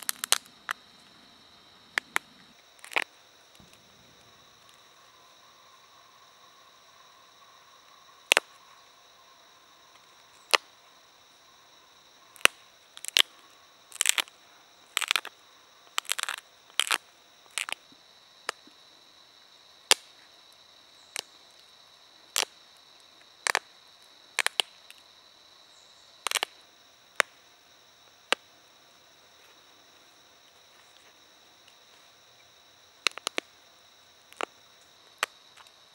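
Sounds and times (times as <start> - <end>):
flint chips snapping off: 0.0 - 0.8, 2.0 - 3.8, 8.3 - 8.5, 10.5 - 10.7, 12.4 - 13.3, 13.9 - 14.3, 14.9 - 15.3, 16.0 - 17.8, 23.4 - 23.6, 24.4 - 25.0, 26.3 - 26.5, 33.0 - 33.5, 34.3 - 34.5.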